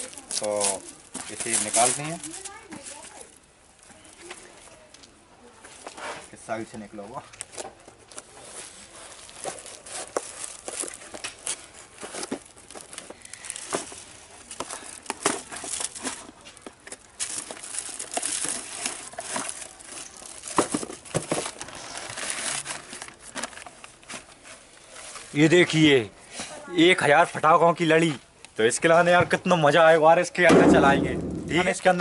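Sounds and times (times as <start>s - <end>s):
plastic and paper packaging crinkling: 0.0s - 6.2s, 7.3s - 25.9s.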